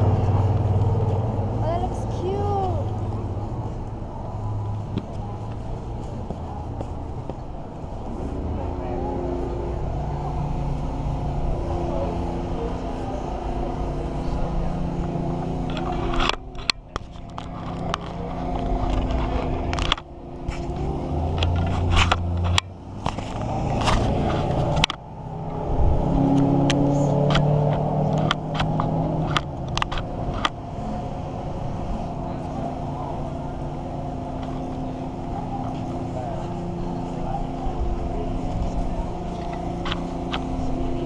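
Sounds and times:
traffic engines humming: 0.0s - 41.0s
sharp clicks and knocks: 26.4s - 30.6s.

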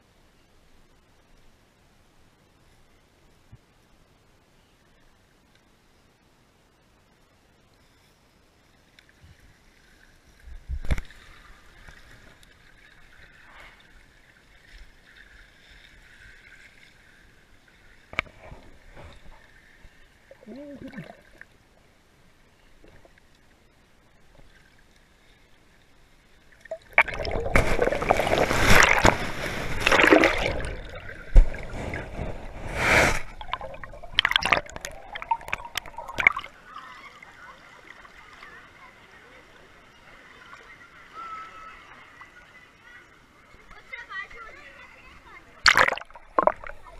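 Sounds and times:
bubbling gurgle: 20.3s - 21.5s, 26.6s - 36.6s, 45.6s - 46.9s
churning water splashes: 26.5s - 42.4s, 43.8s - 46.9s.

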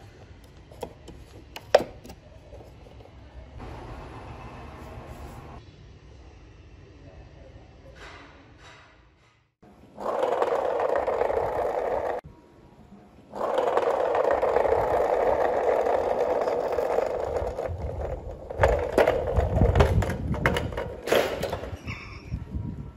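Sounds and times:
wooden wheels rolling on asphalt: 9.8s - 12.2s, 13.2s - 22.3s
toy car bumping over concrete: 10.0s - 12.2s, 13.3s - 22.0s.

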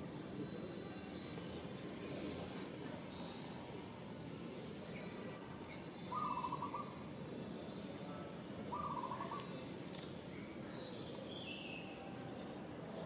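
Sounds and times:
low background hiss: 0.0s - 13.0s
birds calling: 6.0s - 6.9s.

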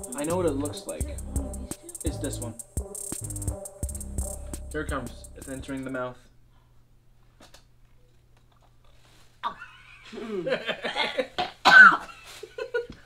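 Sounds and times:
person laughing: 9.6s - 13.0s
boy coughing: 11.6s - 12.1s.

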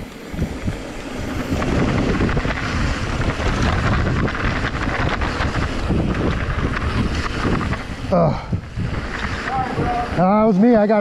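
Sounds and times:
bike tyres rumbling on dirt: 0.0s - 11.0s
wind buffeting microphone: 0.0s - 11.0s
bike knocks and rattles: 0.2s - 8.1s.

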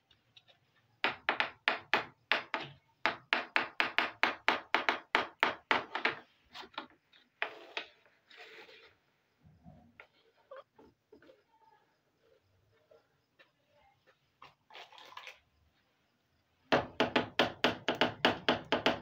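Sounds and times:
soft scraping: 6.4s - 13.1s.

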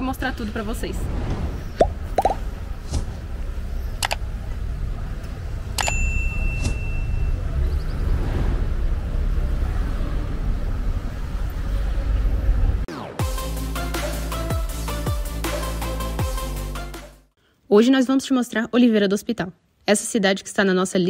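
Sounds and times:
low street rumble: 0.0s - 12.9s
bell-like ding: 5.8s - 7.4s.

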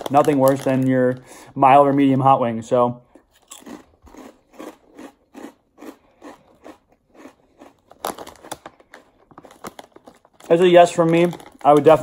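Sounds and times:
chewing crunchy potato chips: 3.1s - 12.0s.

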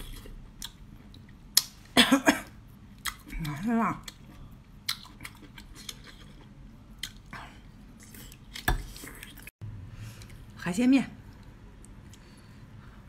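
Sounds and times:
wet chewing with clicks: 3.0s - 7.3s.

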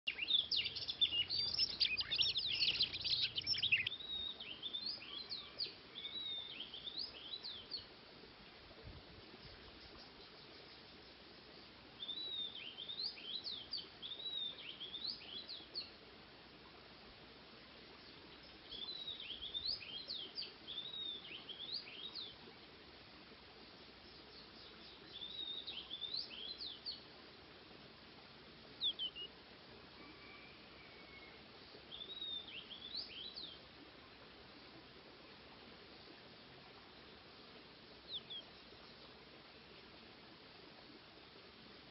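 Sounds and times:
birds singing whistles and chirps: 0.1s - 7.9s, 12.0s - 15.9s, 18.0s - 22.4s, 24.0s - 27.0s, 28.8s - 29.3s, 30.0s - 33.6s, 38.1s - 39.0s
bird call: 30.0s - 31.4s.

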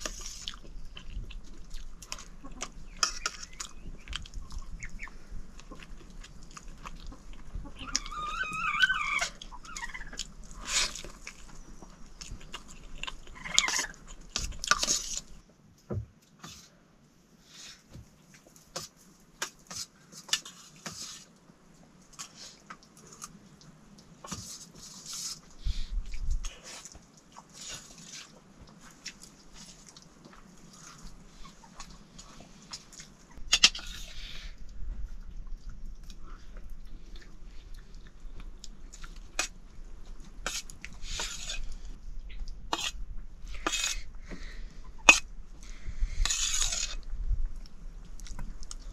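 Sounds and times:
people chewing: 0.0s - 15.4s, 17.5s - 48.9s
wavering animal call: 7.6s - 10.2s.

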